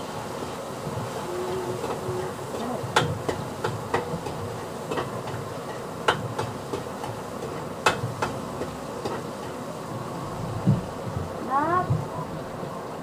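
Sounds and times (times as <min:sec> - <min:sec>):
utensil knocking pot side: 0:02.6 - 0:09.6.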